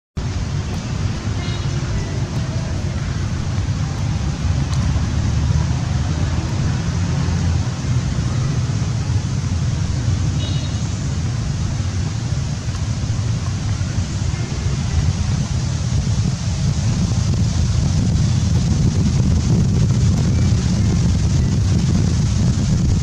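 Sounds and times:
wind buffeting microphone: 0.2s - 23.0s.

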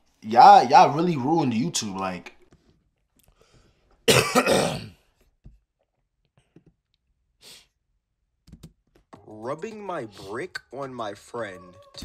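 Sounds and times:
man coughing: 4.1s - 5.0s.

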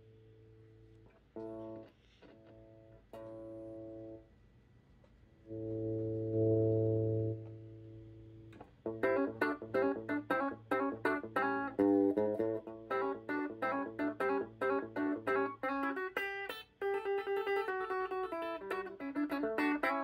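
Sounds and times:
amp hum: 0.0s - 16.5s
electric guitar chords ringing: 5.5s - 20.0s
picked guitar notes: 5.5s - 20.0s.

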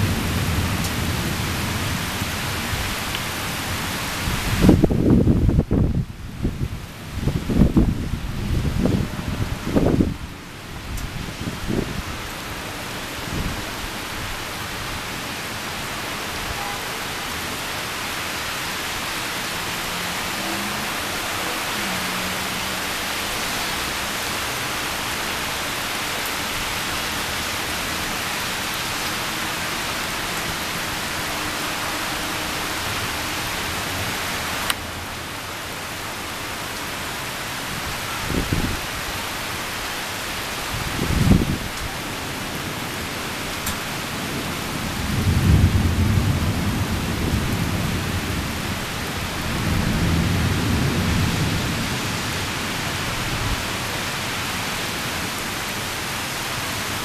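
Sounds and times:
low thunder rumbles: 0.0s - 12.2s, 43.9s - 53.7s
heavy rain pouring: 0.0s - 57.0s.

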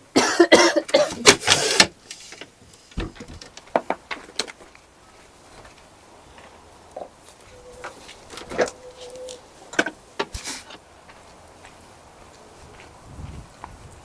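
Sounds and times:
window sliding open with rattling scrape: 1.1s - 3.5s.

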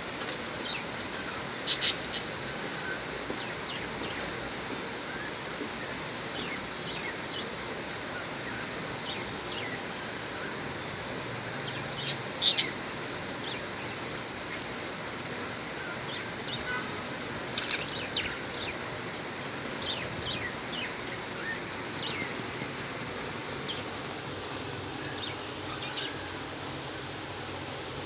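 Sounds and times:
background hiss: 0.0s - 28.0s
budgerigars chirping: 1.6s - 2.3s, 11.7s - 12.8s.

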